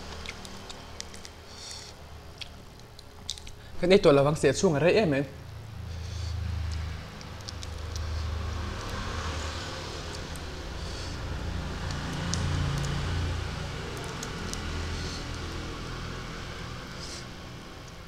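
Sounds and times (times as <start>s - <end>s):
chewing: 0.0s - 3.6s, 6.6s - 11.2s.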